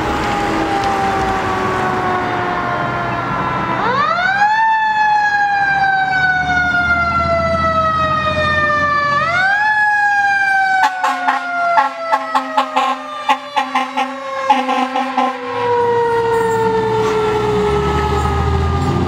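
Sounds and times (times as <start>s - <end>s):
engine rumbling low: 0.0s - 19.0s
fire truck siren wailing: 0.0s - 19.0s
horn short blasts: 10.8s - 15.4s.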